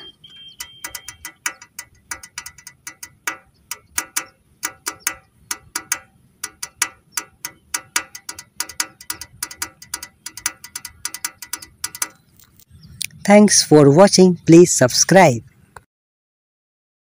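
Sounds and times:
toy tractor wheels clicking: 0:00.0 - 0:12.7.

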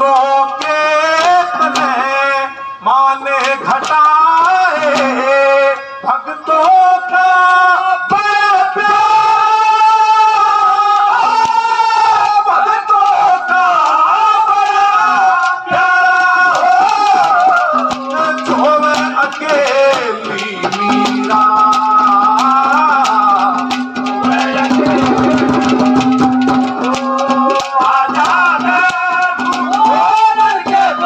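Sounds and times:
hand drum: 0:00.0 - 0:02.4, 0:15.7 - 0:31.0
man singing ornamented melody: 0:00.0 - 0:31.0.

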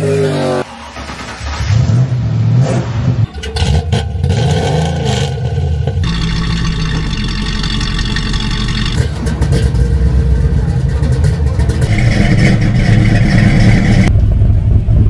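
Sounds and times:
car engine revving: 0:00.0 - 0:14.8.

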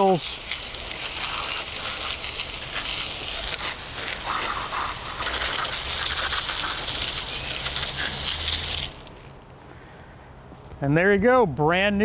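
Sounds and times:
hose jet spraying water: 0:00.0 - 0:09.3
water splashing on concrete: 0:00.0 - 0:09.4.

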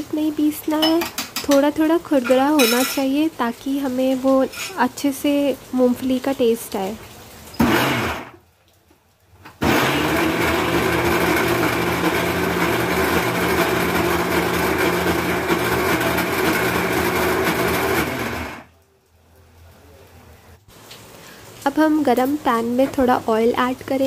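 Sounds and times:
electric mixer grinder running: 0:07.6 - 0:08.4, 0:09.6 - 0:18.7.

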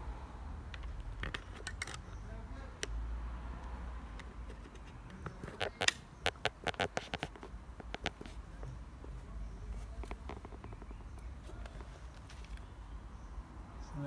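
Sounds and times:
camera handling clicks and taps: 0:05.2 - 0:08.3.

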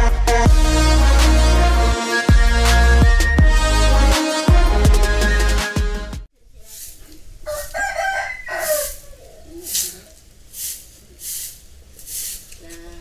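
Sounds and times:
broom sweeping dirt: 0:06.4 - 0:13.0
rooster crowing: 0:07.4 - 0:09.6.

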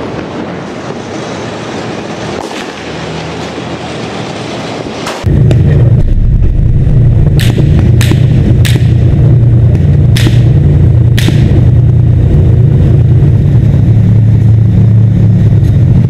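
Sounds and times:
even rushing noise: 0:00.0 - 0:16.0
tank engine rumble: 0:00.0 - 0:16.0
sharp crack: 0:05.0 - 0:12.3.

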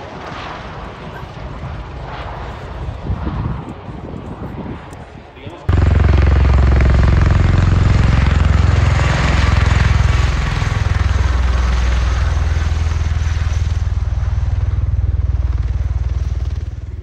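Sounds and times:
tiltrotor aircraft hovering: 0:05.7 - 0:17.0.

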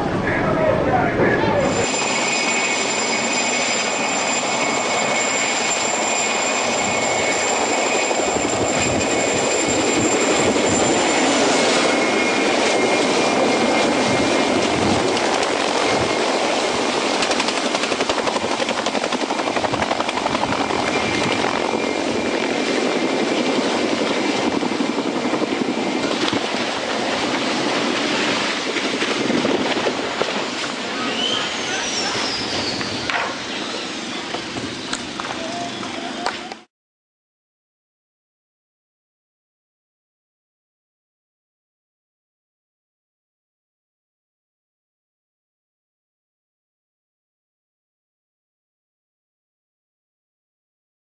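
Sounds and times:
helicopter rotor chop: 0:00.0 - 0:36.7
high turbine whine: 0:00.0 - 0:36.7.

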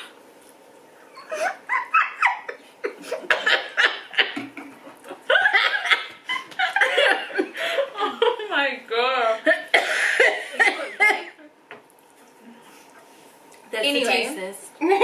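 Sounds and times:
women laughing: 0:01.1 - 0:08.6, 0:09.4 - 0:11.5, 0:14.8 - 0:15.0.

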